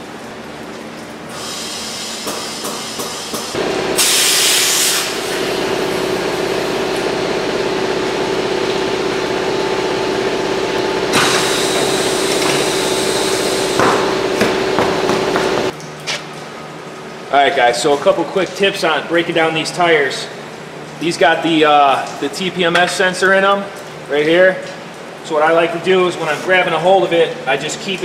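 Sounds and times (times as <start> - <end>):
compressed air hiss: 1.4 - 5.5
machine hum: 3.4 - 16.9.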